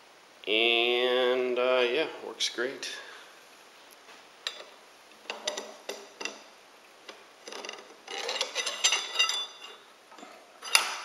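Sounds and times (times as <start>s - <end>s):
metal scraping and rattling: 7.4s - 11.0s.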